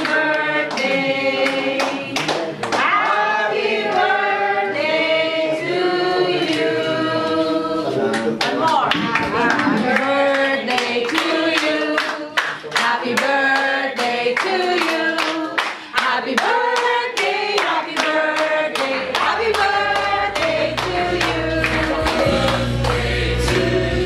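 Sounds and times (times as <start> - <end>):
people clapping along: 0.0 - 5.8, 6.4 - 6.8, 8.0 - 24.0
group singing together: 0.0 - 24.0
deep low bass tone: 19.2 - 24.0.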